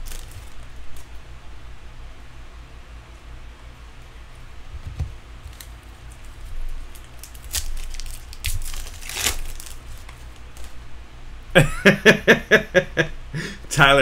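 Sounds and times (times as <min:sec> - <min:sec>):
cards rustling: 0:00.0 - 0:01.1, 0:05.4 - 0:10.8
foil pack tearing and crinkling: 0:00.0 - 0:01.1, 0:05.4 - 0:10.8.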